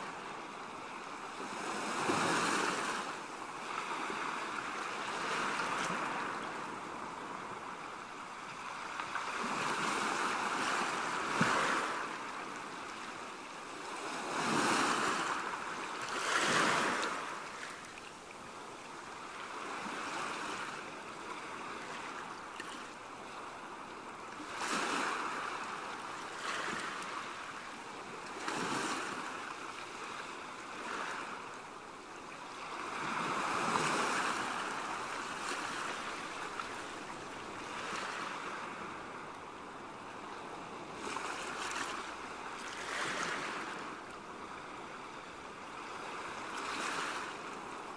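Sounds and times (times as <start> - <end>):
sea waves washing in: 0.0 - 47.9.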